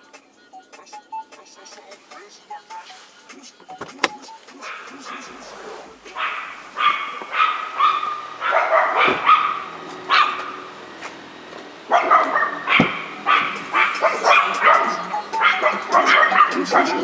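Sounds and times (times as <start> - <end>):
dog barking sharply: 6.2 - 10.5, 11.9 - 17.0.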